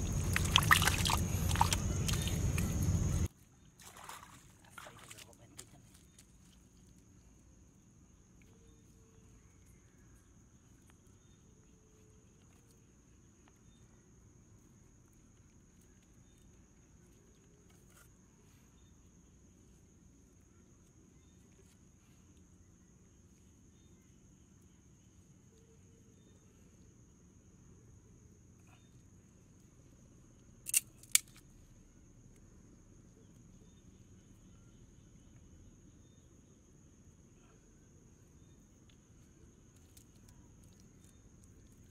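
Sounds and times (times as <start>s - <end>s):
high-pitched insect trill: 0.0s - 3.3s, 29.8s - 41.9s
high insect trill: 0.0s - 41.9s
bamboo slats clicking together: 30.7s - 31.4s.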